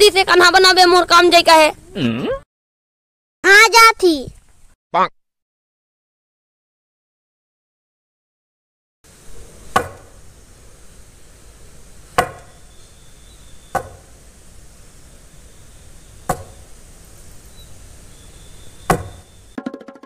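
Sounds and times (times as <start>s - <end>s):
axe chopping into log: 9.7s - 10.1s, 12.2s - 12.5s, 13.7s - 14.1s, 16.3s - 16.6s, 18.9s - 19.2s.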